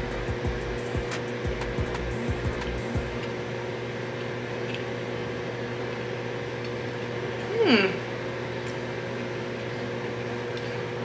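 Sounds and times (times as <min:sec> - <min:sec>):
low room hum: 0:00.0 - 0:11.0
person humming mm: 0:07.4 - 0:08.1.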